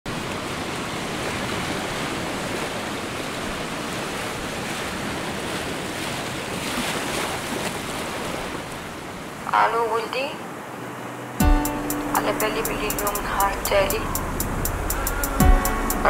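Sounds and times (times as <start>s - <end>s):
sea surf washing in: 0.1s - 16.0s
wind rushing: 11.1s - 16.0s.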